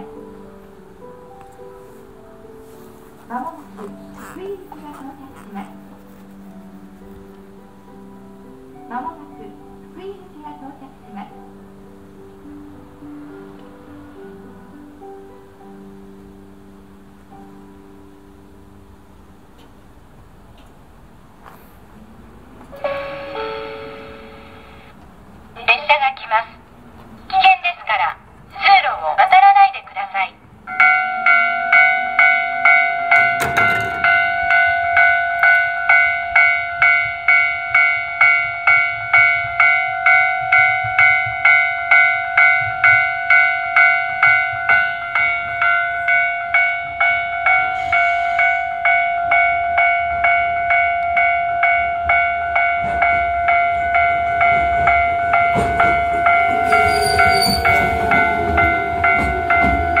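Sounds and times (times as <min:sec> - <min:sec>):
train rumbling in: 0:18.6 - 0:27.4, 0:30.4 - 1:00.0
railway crossing bell ringing: 0:22.7 - 0:25.0, 0:30.6 - 1:00.0
train brake squeal: 0:47.5 - 0:49.0, 0:56.5 - 1:00.0.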